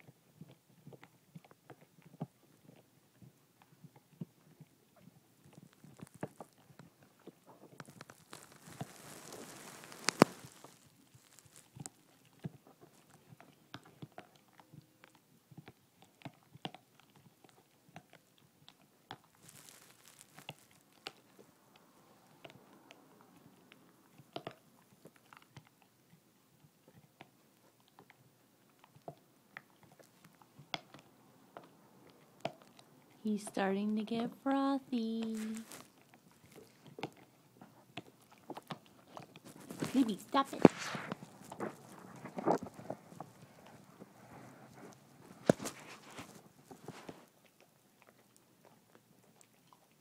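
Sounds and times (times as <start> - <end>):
dog gnawing a bone: 0.0 - 33.2, 35.1 - 50.0.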